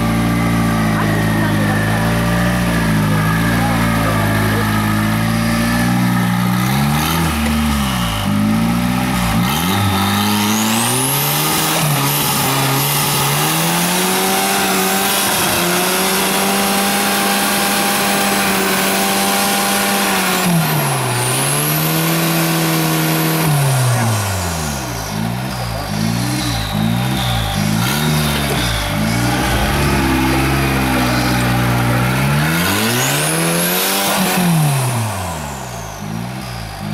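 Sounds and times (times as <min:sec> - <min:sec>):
engine revving under load: 0:00.0 - 0:36.9
turbo whistle: 0:25.9 - 0:33.2.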